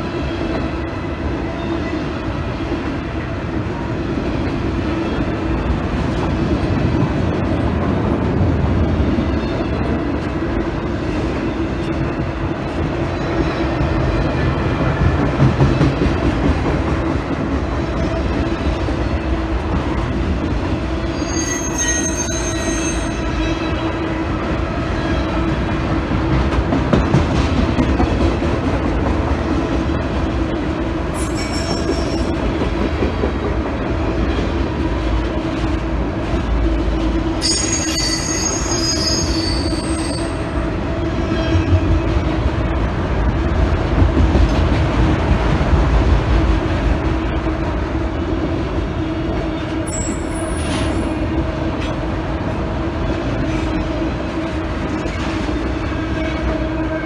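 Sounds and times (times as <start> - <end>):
train wheels rumbling on rails: 0.0 - 57.0
high-pitched wheel squeals: 21.1 - 23.5, 31.2 - 32.4, 37.4 - 40.5, 49.9 - 51.1.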